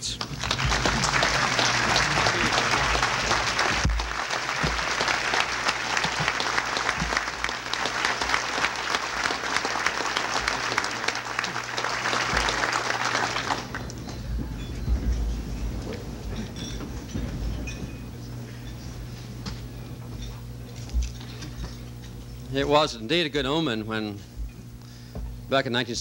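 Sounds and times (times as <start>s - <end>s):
audience applauding: 0.0s - 16.7s.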